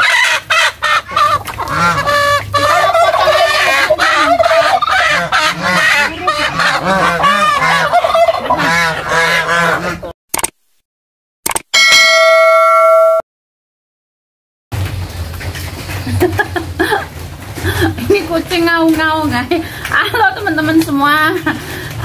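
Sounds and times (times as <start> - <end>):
chickens squawking and clucking: 0.0 - 10.1
geese honking: 0.0 - 10.1.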